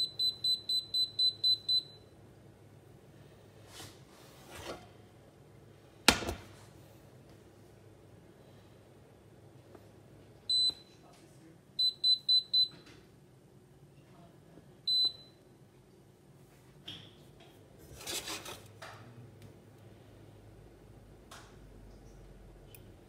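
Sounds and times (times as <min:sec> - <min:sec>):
cooktop touch controls beeping: 0:00.0 - 0:02.2, 0:10.5 - 0:10.9, 0:11.8 - 0:12.8, 0:14.9 - 0:15.4.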